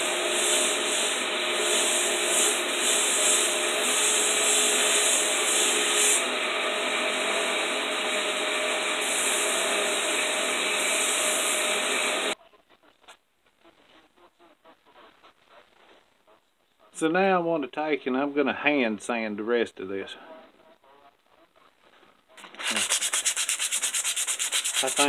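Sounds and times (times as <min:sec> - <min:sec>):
belt grinder sanding wood: 0:00.0 - 0:12.4, 0:22.4 - 0:25.0.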